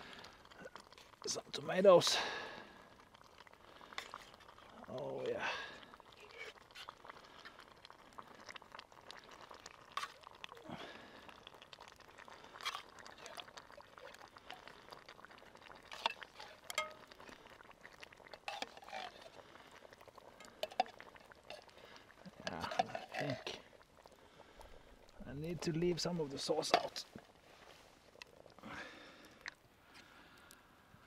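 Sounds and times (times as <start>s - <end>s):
tomatoes pouring into pot: 3.2s - 24.6s.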